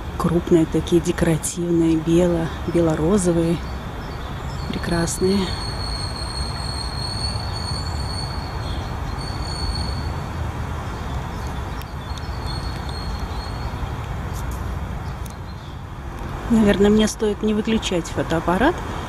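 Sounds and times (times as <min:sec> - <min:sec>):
city noise rumble: 0:00.0 - 0:19.0
rail vehicle wheel squeal: 0:05.5 - 0:10.3.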